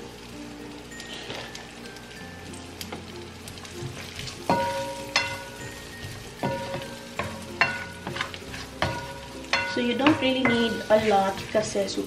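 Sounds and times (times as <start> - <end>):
sausage sizzling in frying pan: 0.0 - 12.0
spatula knocking against pan: 4.5 - 11.5.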